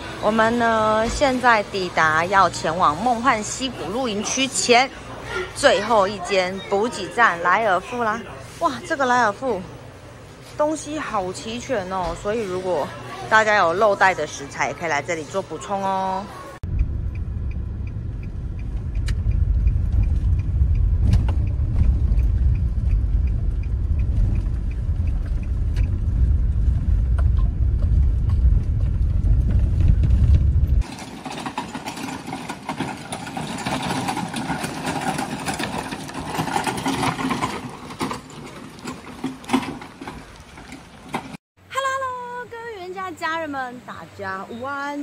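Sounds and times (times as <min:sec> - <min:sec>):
engine and tyre rumble: 0:16.6 - 0:41.4
hissy outdoor background: 0:41.6 - 0:45.0.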